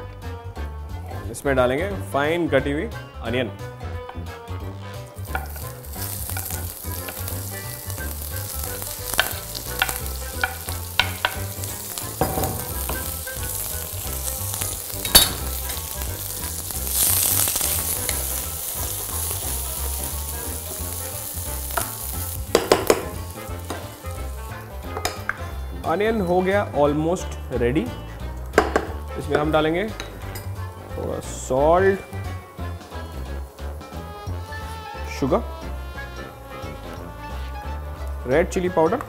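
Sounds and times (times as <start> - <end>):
onion sizzling in oil: 4.1 - 39.0
spatula knocking against pan: 22.5 - 23.2, 28.6 - 29.4.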